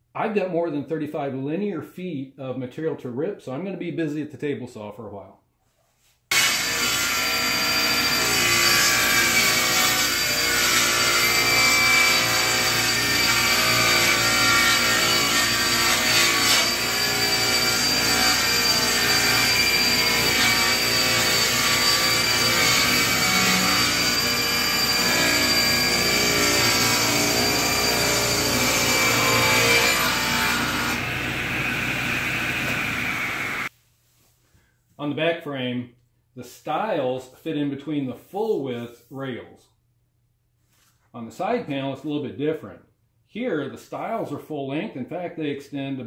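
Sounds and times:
table saw whining: 6.3 - 33.7.

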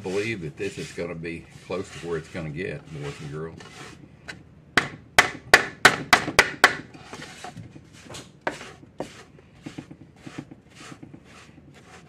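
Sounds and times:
stirring dough: 0.0 - 4.4, 6.9 - 12.0.

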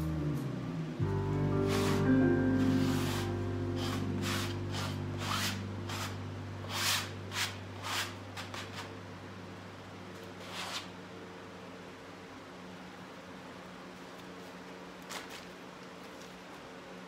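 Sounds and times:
music: 0.0 - 7.6.

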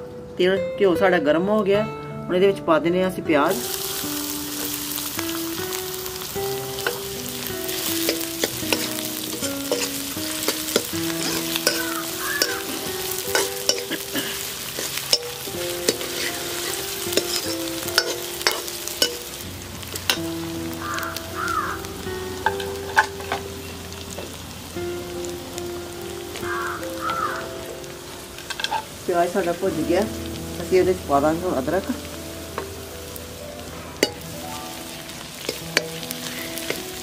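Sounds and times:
onions sizzling in ghee: 3.4 - 37.0
ladle scraping pan: 6.8 - 19.3.

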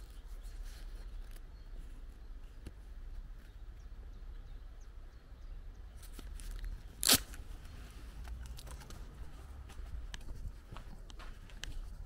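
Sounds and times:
low wind rumble: 0.0 - 12.0
footsteps crunching on dirt: 8.9 - 12.0.

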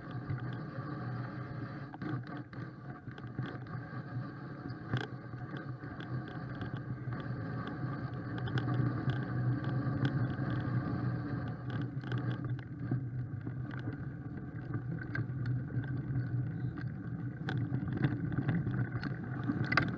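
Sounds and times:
bike clicks and rattles: 4.9 - 10.7, 11.6 - 12.8, 13.4 - 19.9.

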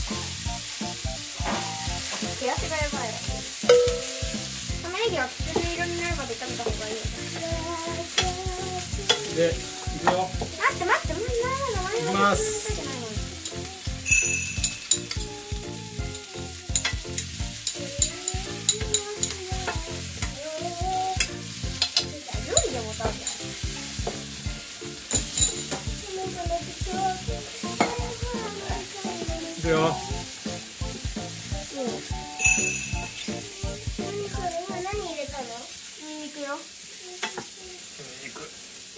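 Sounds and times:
vegetables sizzling in a frying pan: 0.0 - 38.9
chopsticks clicking against pan: 8.1 - 8.4, 9.0 - 9.4, 14.5 - 15.3, 16.1 - 20.4, 21.1 - 23.4.

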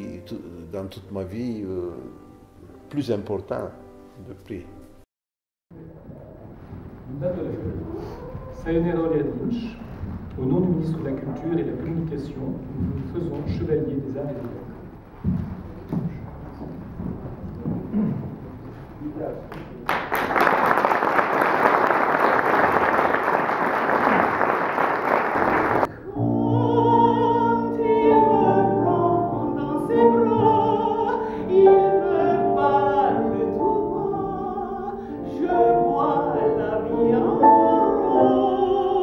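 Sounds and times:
grand piano: 0.0 - 5.0, 5.7 - 39.0
audience applauding: 19.5 - 25.9
woman singing operatically: 26.0 - 39.0.

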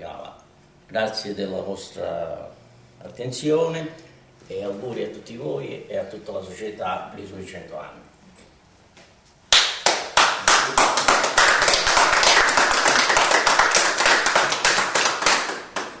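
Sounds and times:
people applauding: 9.5 - 16.0.

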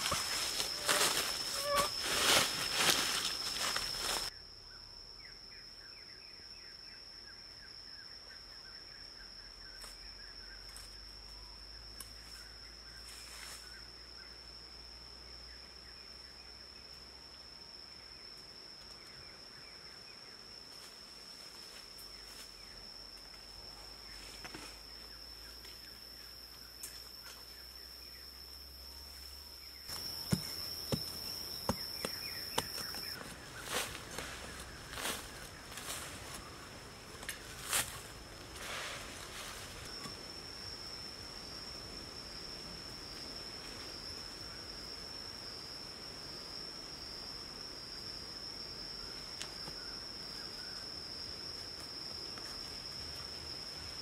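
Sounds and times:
insects droning: 0.0 - 54.0.

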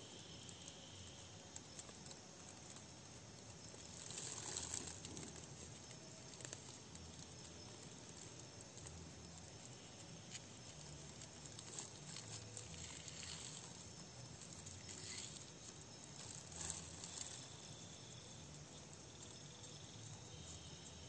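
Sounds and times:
crickets chirping: 0.0 - 21.0
plastic wrapping crinkling: 3.7 - 19.4.

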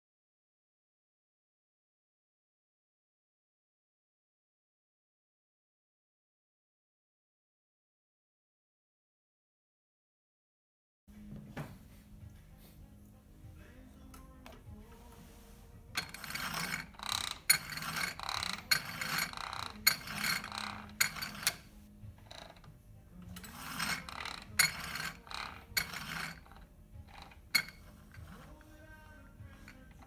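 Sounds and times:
clutch and chain ratcheting clatter: 16.0 - 22.7, 23.3 - 28.7.

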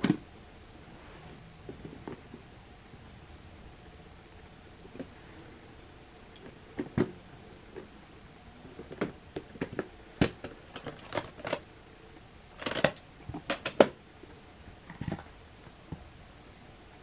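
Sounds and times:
plastic case clicks and clacks: 12.6 - 14.0.

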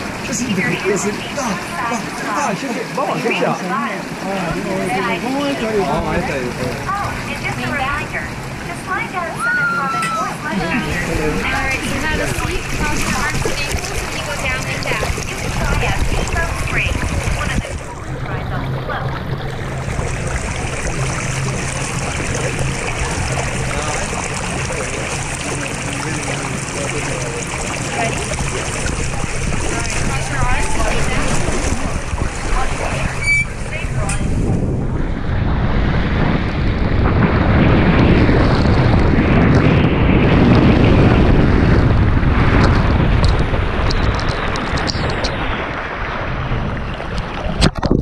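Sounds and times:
water rushing down a slide chute: 0.0 - 48.0
wind buffeting microphone: 4.1 - 48.0.

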